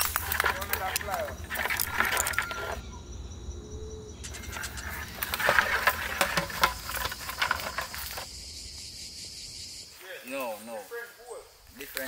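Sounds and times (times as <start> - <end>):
footsteps on dry leaves: 0.0 - 2.8
insects humming: 0.0 - 12.0.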